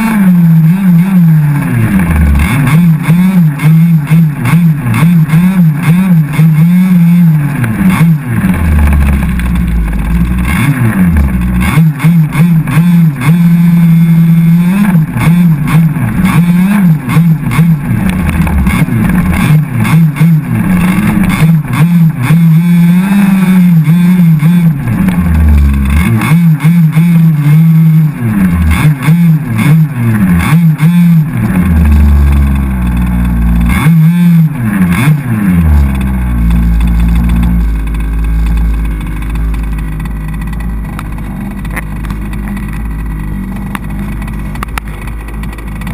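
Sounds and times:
two-stroke engine revving: 0:00.0 - 0:45.9
low rumble: 0:07.4 - 0:11.8, 0:35.4 - 0:45.9.

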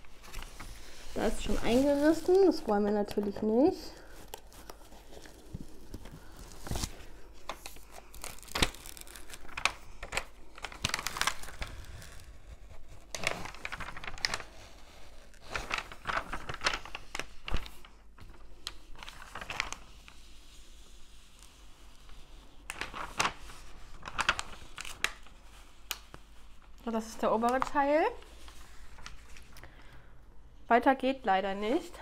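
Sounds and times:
film peeling from adhesive: 0:06.7 - 0:14.5.

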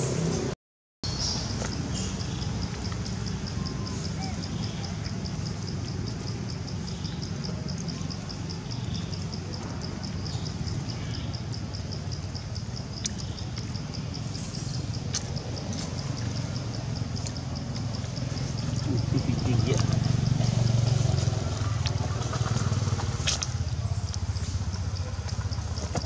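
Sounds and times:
insect chirping: 0:01.0 - 0:26.0.

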